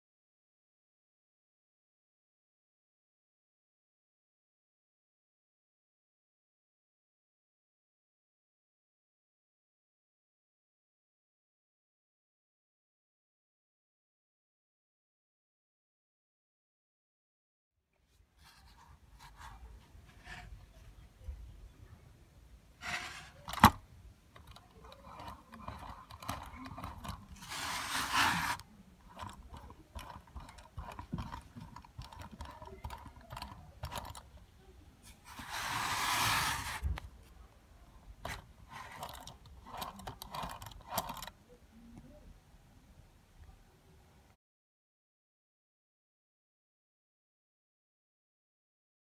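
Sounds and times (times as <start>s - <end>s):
metal parts clicking and scraping: 24.4s - 34.3s, 38.2s - 41.4s.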